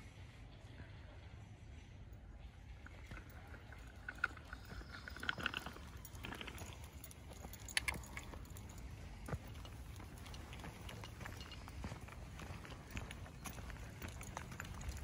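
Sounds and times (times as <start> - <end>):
footsteps on dirt trail: 3.4 - 15.0.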